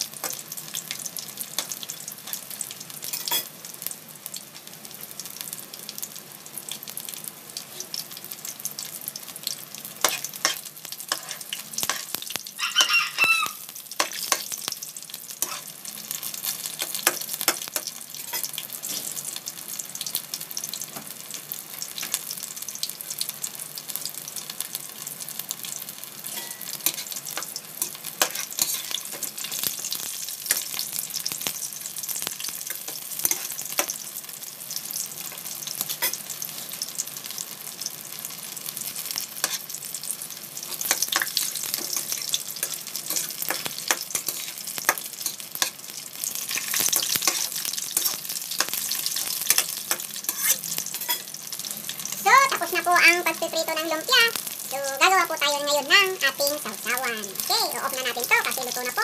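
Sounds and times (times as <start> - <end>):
food sizzling in hot oil: 0.0 - 59.0
spatula scraping a wok: 10.0 - 12.2, 14.0 - 14.6, 15.4 - 19.3, 26.2 - 30.8, 32.2 - 34.0, 35.3 - 36.8, 38.8 - 39.8, 40.6 - 52.2.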